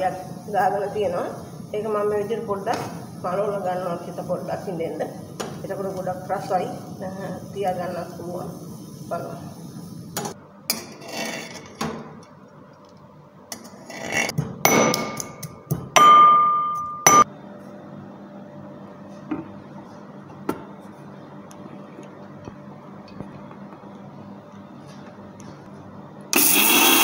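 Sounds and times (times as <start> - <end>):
ringing metal clang: 16.0 - 17.2.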